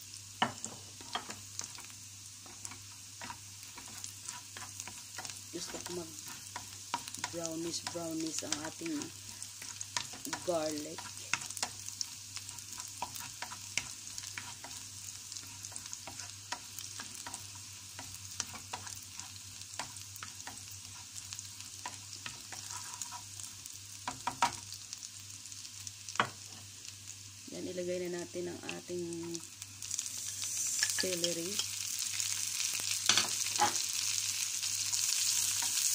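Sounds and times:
garlic sizzling in hot oil: 0.0s - 35.9s
wooden spatula scraping a pan: 0.4s - 21.2s, 21.8s - 23.5s.

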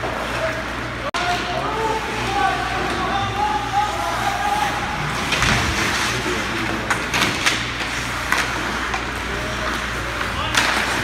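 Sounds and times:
steady low hum: 0.0s - 11.0s
skates scraping ice: 3.6s - 11.0s
hockey sticks and puck clacking: 5.1s - 11.0s.

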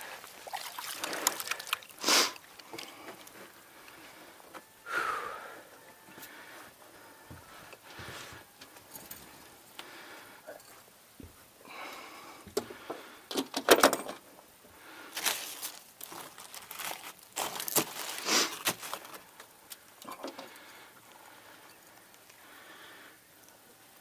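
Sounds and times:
fishing gear knocks and rattles: 0.5s - 3.4s.

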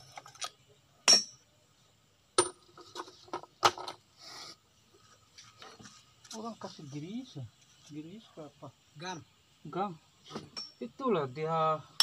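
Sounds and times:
metallic clinks of steel parts: 10.3s - 10.8s.

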